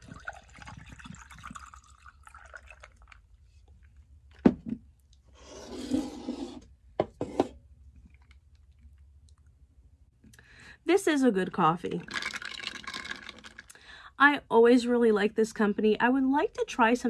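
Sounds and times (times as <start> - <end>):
liquid trickling into glass: 0.0 - 3.3, 12.0 - 13.7.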